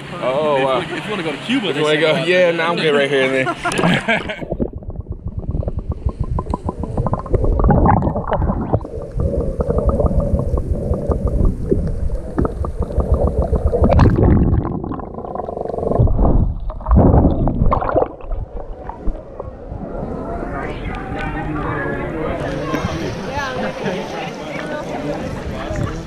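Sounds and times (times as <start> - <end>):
water crackling around camera: 3.6 - 21.8
muffled underwater rumble: 3.7 - 23.9.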